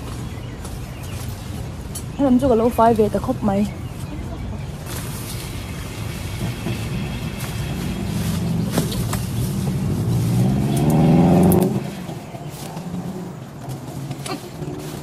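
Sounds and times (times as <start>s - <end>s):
vehicle engine revving: 5.5s - 15.0s.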